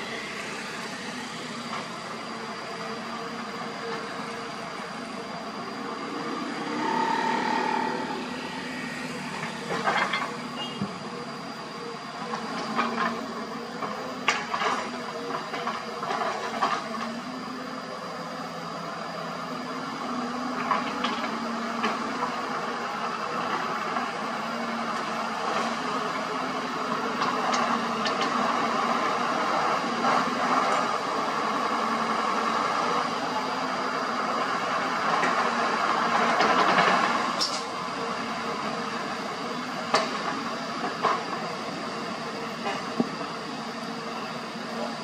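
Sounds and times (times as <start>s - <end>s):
heavy diesel engines running: 0.0s - 45.0s
brief tone: 3.8s - 11.9s.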